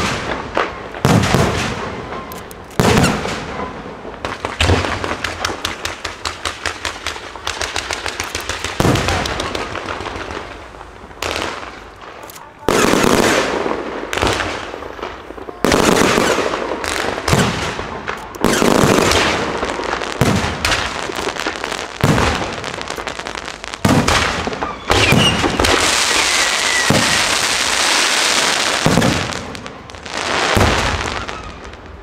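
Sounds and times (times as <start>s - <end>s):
firework crackle: 0.0s - 32.0s
firework shells bursting: 23.8s - 31.6s.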